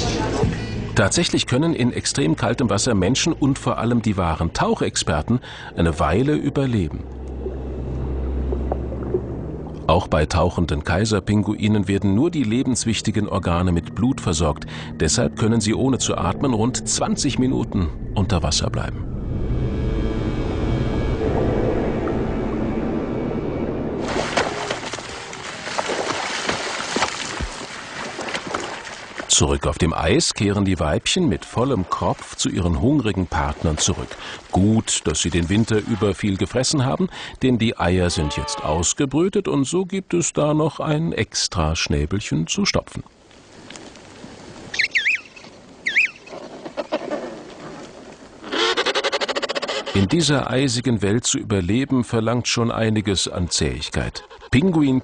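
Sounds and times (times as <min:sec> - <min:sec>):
low rumble: 0:00.0 - 0:25.7
water splashing and sloshing: 0:03.5 - 0:12.6, 0:21.2 - 0:37.0, 0:43.1 - 0:49.0
steady faint hiss: 0:39.0 - 0:48.5
penguin chicks whistling: 0:44.7 - 0:46.3.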